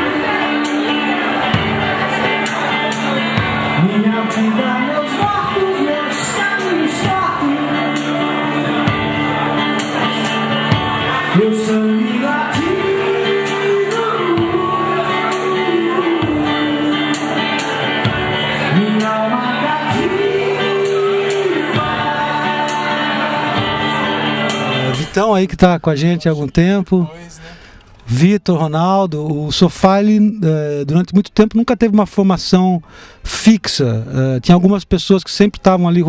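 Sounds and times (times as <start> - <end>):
drums: 0.0 - 25.2
guitar: 0.0 - 34.8
person singing long notes: 3.7 - 9.4, 10.3 - 25.1.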